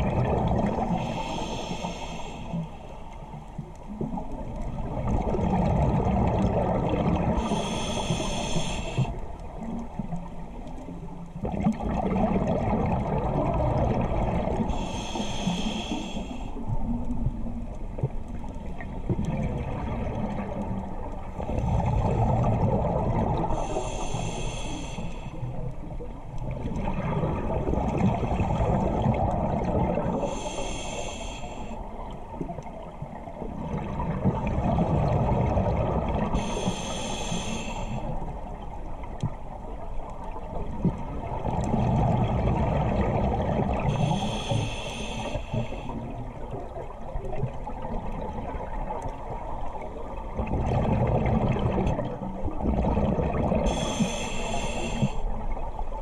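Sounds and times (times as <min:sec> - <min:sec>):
exhaled air bubbling: 0:00.0 - 0:02.7, 0:03.3 - 0:56.0
regulator inhale hiss: 0:00.8 - 0:03.3, 0:07.4 - 0:09.4, 0:14.6 - 0:16.8, 0:23.4 - 0:25.7, 0:30.1 - 0:32.0, 0:36.3 - 0:38.3, 0:43.8 - 0:46.2, 0:53.7 - 0:55.5.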